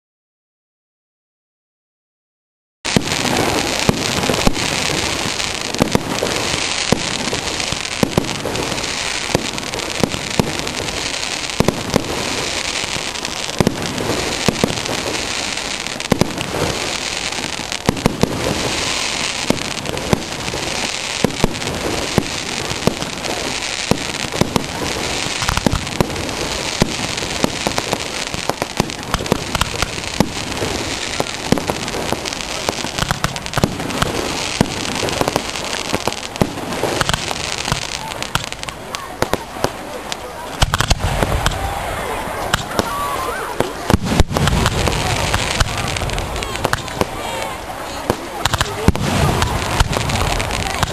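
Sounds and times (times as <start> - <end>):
fireworks crackling and banging: 2.9 - 50.9.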